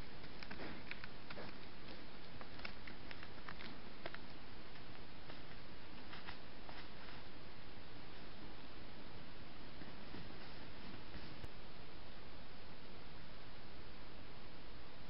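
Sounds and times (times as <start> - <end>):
faint crackles and ticks: 0.0 - 7.3
microphone hiss: 0.0 - 15.0.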